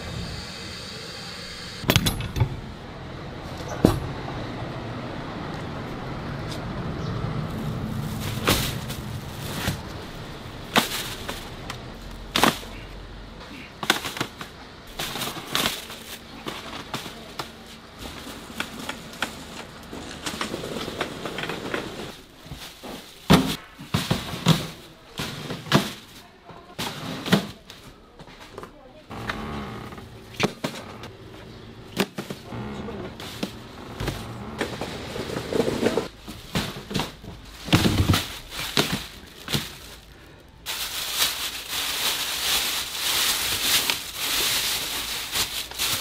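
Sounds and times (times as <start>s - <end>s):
low background rumble: 0.0s - 20.1s.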